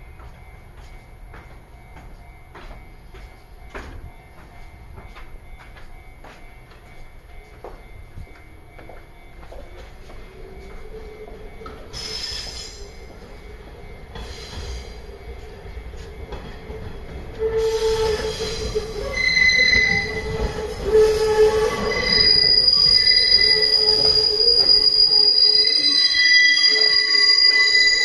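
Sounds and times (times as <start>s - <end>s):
train wheels squealing on rails: 10.0s - 28.0s.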